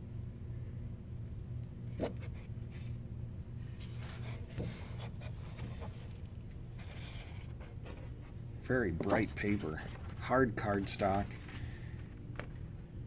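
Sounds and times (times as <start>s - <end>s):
steady low hum: 0.0s - 13.0s
stiff paper rustling and crinkling: 3.7s - 12.7s.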